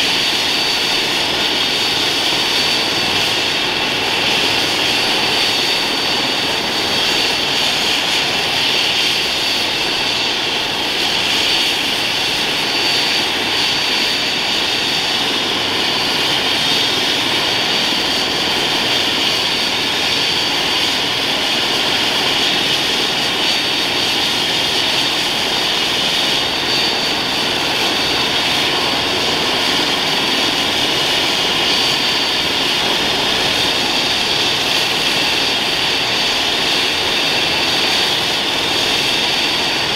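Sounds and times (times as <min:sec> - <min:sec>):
helicopter rotor rushing: 0:00.0 - 0:39.9
helicopter turbine whine: 0:00.0 - 0:39.9.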